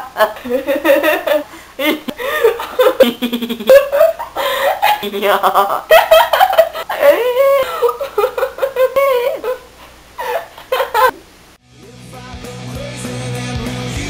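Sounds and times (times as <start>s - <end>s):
girl laughing and giggling: 0.0s - 11.2s
band music: 11.7s - 14.0s.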